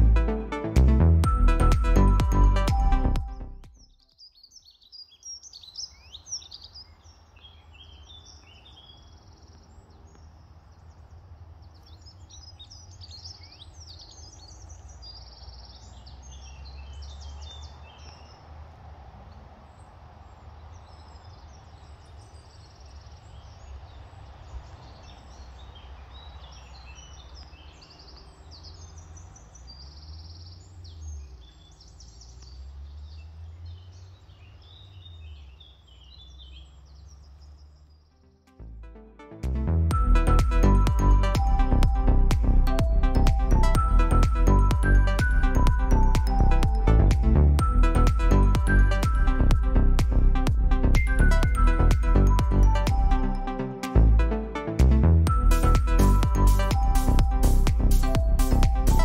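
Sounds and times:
songbirds chirping and trilling: 3.7 - 38.8, 40.0 - 59.0
steady low rumble: 38.7 - 59.0.

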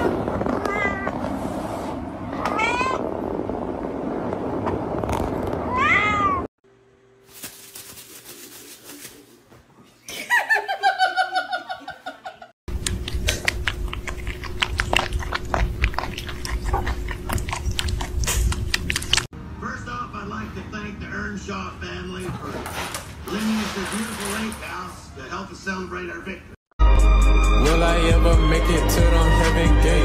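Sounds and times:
cat meowing: 0.5 - 1.2, 2.3 - 3.0, 5.7 - 6.5.

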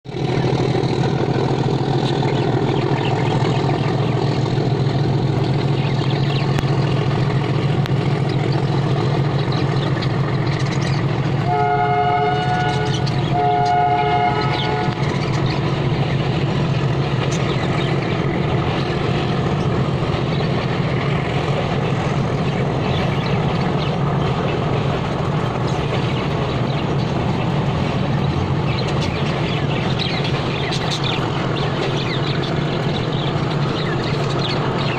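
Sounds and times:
machinery rumbling: 0.1 - 34.9
horn blasts: 11.4 - 15.2.

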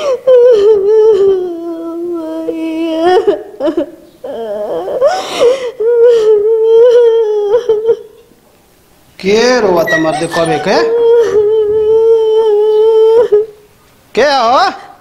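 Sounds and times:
woman wailing in grief: 9.7 - 13.5.

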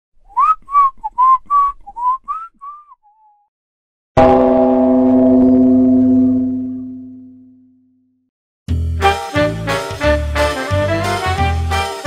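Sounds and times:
whistled tune: 0.3 - 3.5.

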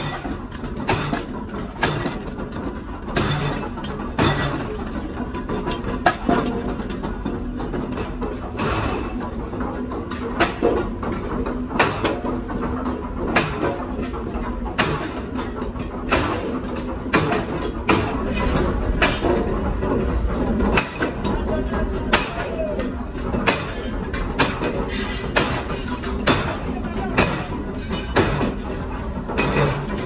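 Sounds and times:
faint voices: 20.1 - 24.0, 24.8 - 28.4.

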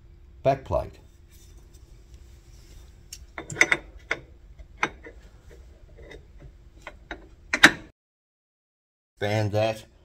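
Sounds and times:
faint steady hum: 0.0 - 7.9
metal chuck parts clinking: 3.2 - 5.2.

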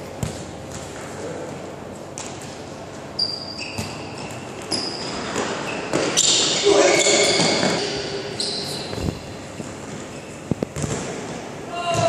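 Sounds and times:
shoes squeaking on floor: 3.1 - 11.0
ball kicked on wooden court: 10.7 - 11.1.

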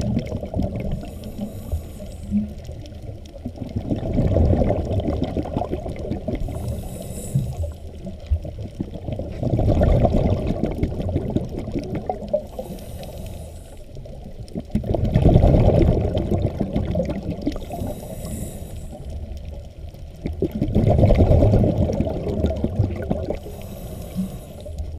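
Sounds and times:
exhaled bubbles rushing: 0.0 - 1.7, 2.3 - 12.7, 13.9 - 24.9
regulator inhale hiss: 0.9 - 2.6, 6.4 - 8.0, 12.4 - 14.0, 17.6 - 19.3, 23.4 - 24.9.

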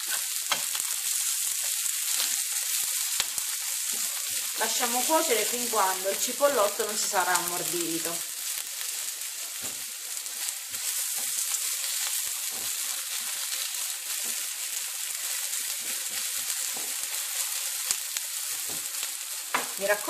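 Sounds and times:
spatula scraping a pan: 0.0 - 4.6
food sizzling in a frying pan: 0.0 - 20.0.

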